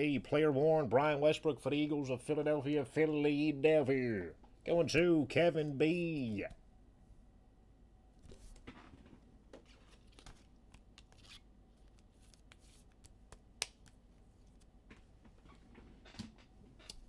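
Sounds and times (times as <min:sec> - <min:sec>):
trading cards rustling and clicking: 0:08.3 - 0:15.1.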